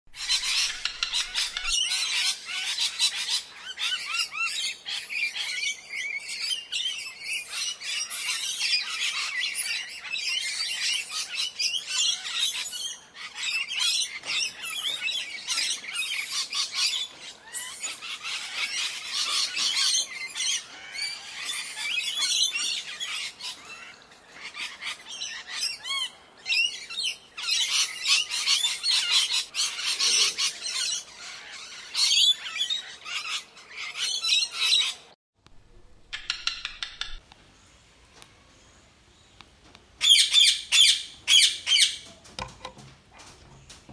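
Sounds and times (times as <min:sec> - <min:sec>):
parakeets chattering: 0:00.2 - 0:04.2, 0:13.2 - 0:26.1, 0:40.0 - 0:42.1.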